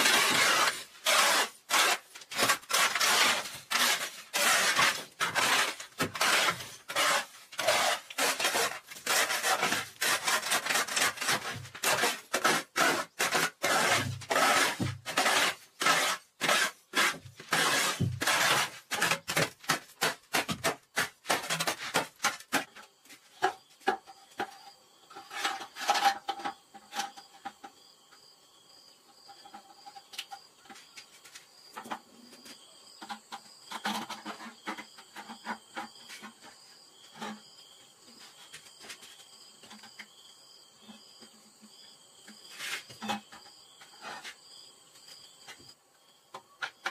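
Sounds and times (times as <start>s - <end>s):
shovel scraping on concrete: 0.0s - 27.2s, 42.4s - 43.3s.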